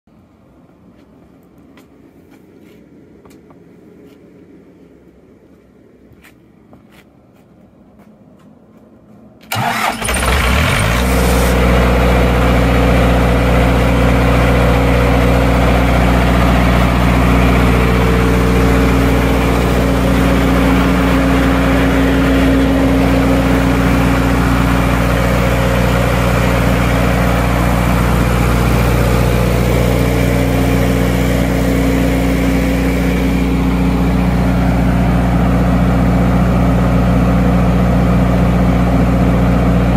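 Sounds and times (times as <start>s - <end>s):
diesel generator engine running: 8.7s - 39.9s.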